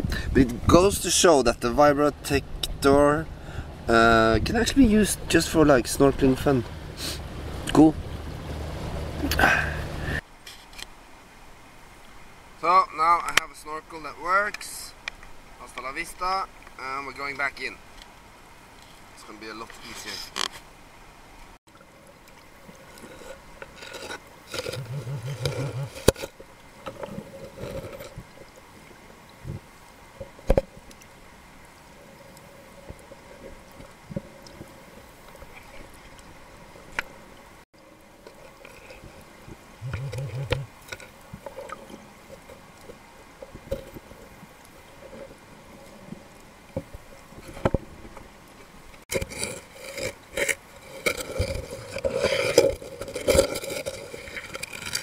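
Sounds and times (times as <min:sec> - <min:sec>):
muffled underwater water movement: 0:21.4 - 0:55.0.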